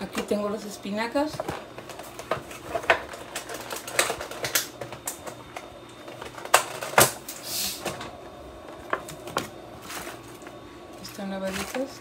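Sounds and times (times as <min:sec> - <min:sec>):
crinkling rustle: 0:08.8 - 0:12.0.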